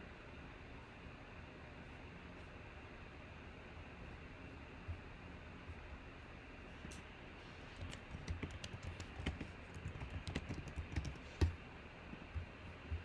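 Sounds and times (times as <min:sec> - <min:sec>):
computer keyboard key clicks: 0:07.8 - 0:11.6.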